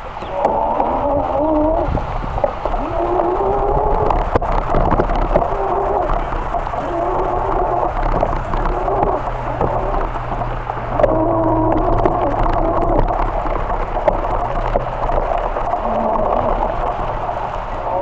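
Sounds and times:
wavering hum: 0.0 - 18.0
wind rumble on microphone: 0.0 - 18.0.

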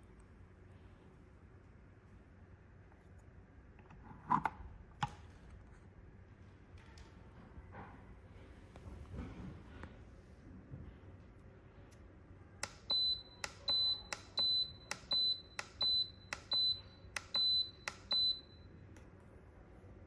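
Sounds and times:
pressure cooker beeps: 12.7 - 18.7.

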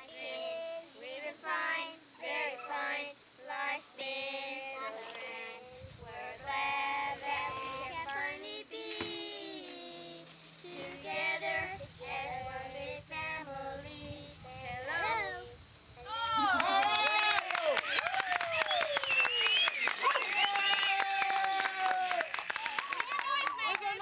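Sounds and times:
children and woman singing: 0.0 - 15.6.

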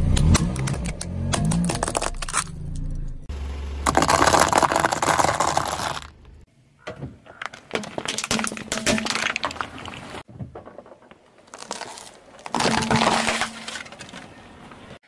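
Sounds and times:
sharp cracks under tyre: 0.0 - 2.9, 3.8 - 6.5, 10.6 - 14.3
tyre crushing dry pasta: 3.8 - 6.3, 10.6 - 14.2.

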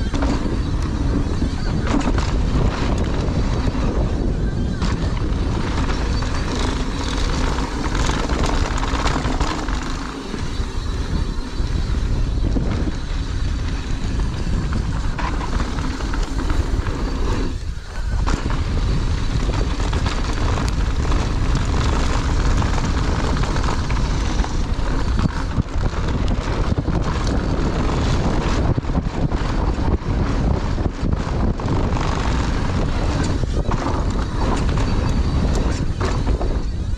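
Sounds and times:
bike clicking and rattling: 0.0 - 36.9
wind buffeting microphone: 0.0 - 36.9.

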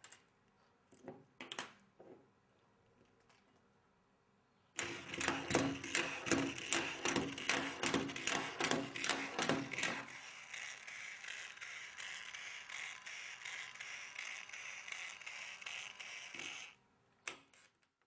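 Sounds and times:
small machine rhythmic clatter: 4.8 - 16.8.

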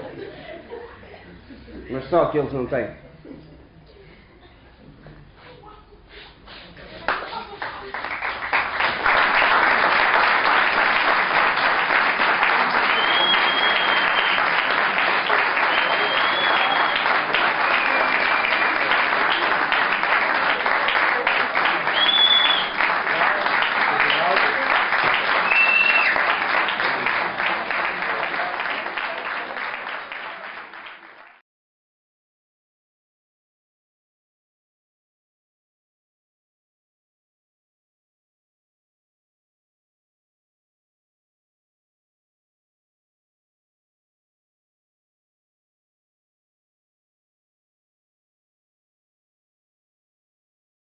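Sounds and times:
audience applauding: 7.1 - 31.4
high whistle: 12.8 - 14.4, 15.6 - 18.5, 21.9 - 22.8, 25.4 - 26.2.

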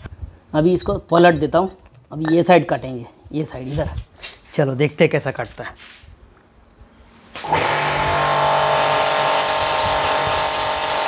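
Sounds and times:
pressure washer motor humming: 7.4 - 11.0
water jet hissing on cement: 7.4 - 11.0.

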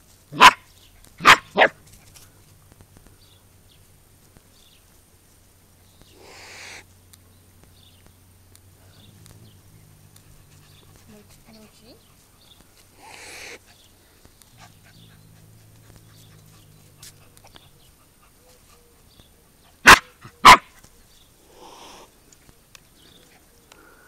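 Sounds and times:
puppy barking: 0.3 - 1.8, 19.8 - 20.8.

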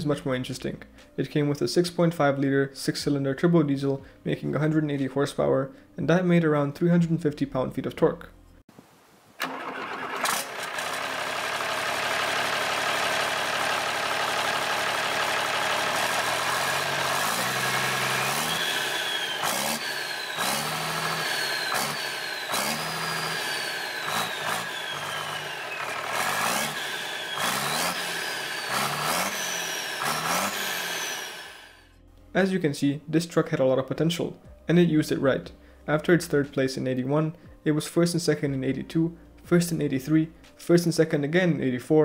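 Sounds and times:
diesel engine revving: 9.4 - 31.9.

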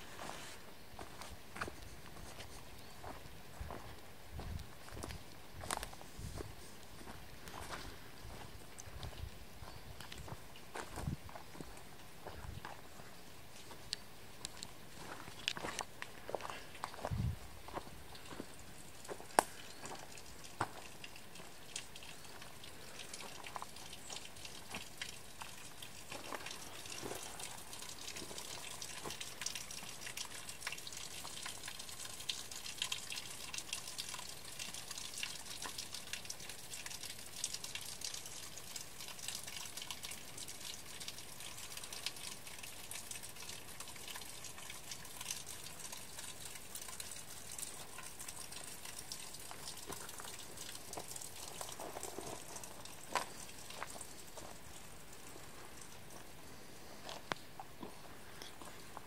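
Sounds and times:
water dripping onto wet stones: 13.6 - 56.5, 57.1 - 59.0.

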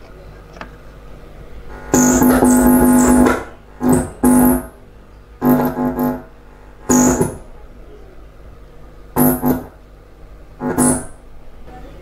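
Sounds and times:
speaker crackle: 1.7 - 4.7, 10.6 - 11.2
buzzy pitched tone from speaker: 1.7 - 4.8, 5.4 - 7.5, 9.2 - 9.8, 10.6 - 11.3.

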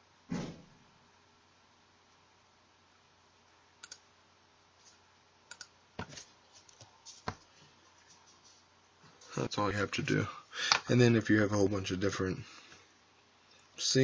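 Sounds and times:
faint room hiss: 0.0 - 14.0
computer mouse clicking: 3.8 - 4.0, 5.5 - 5.8.

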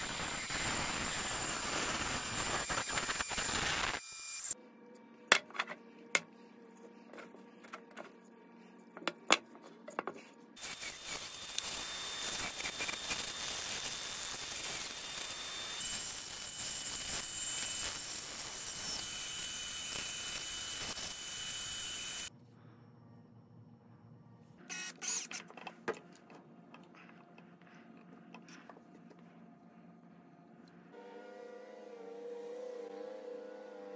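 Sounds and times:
bandsaw cutting wood: 10.6 - 22.3.

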